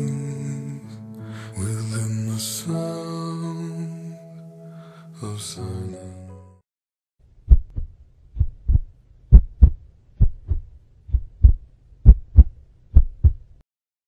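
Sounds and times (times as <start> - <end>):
heartbeat thumps: 7.5 - 13.5.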